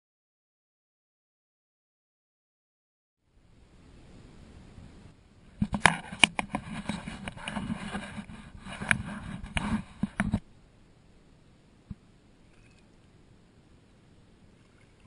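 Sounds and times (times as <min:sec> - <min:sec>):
kayak knocks and scrapes: 0:05.6 - 0:10.4.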